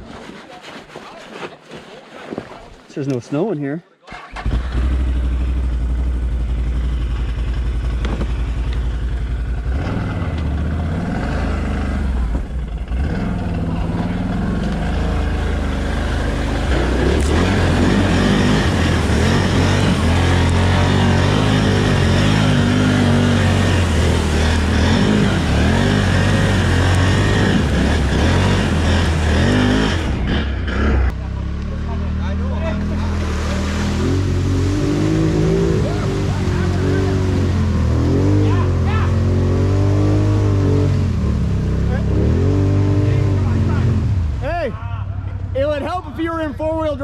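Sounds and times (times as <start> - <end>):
atv engine running under load: 4.3 - 32.7.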